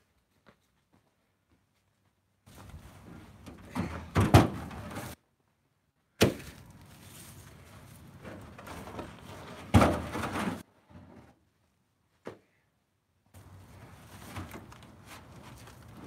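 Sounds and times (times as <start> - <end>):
firewood logs thudding: 3.4 - 5.2, 6.2 - 6.9, 8.2 - 10.6.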